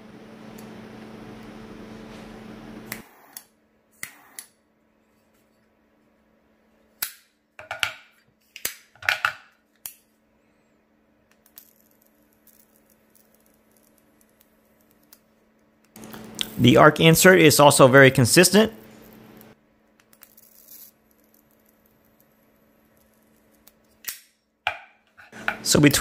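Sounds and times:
faint electric arc buzz: 0:15.9 - 0:24.0.

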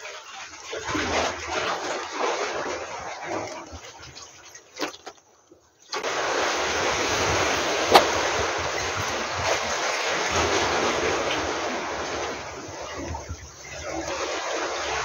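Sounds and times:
wind: 0:00.0 - 0:15.0
sea waves washing: 0:05.9 - 0:15.0.

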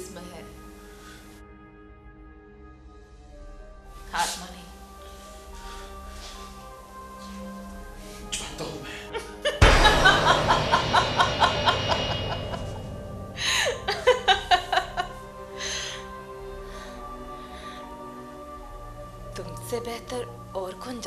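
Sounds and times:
soft background music: 0:00.0 - 0:21.0
person laughing hard: 0:13.5 - 0:15.2.

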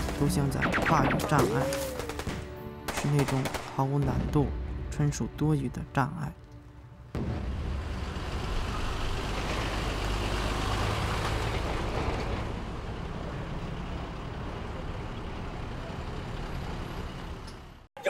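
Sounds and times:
military trucks driving by: 0:06.5 - 0:17.9.

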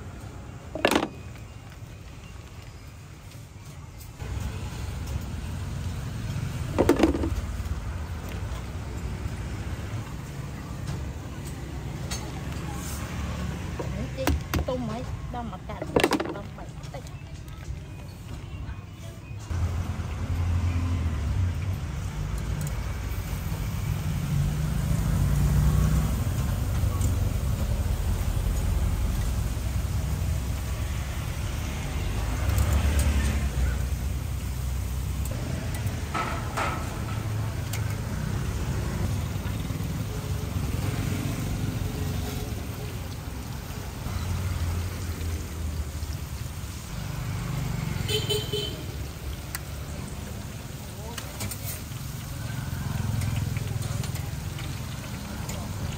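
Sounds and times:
street traffic noise: 0:00.0 - 0:55.9
vehicle engine humming: 0:04.2 - 0:17.5
oil sizzling in a wok: 0:19.5 - 0:55.9.

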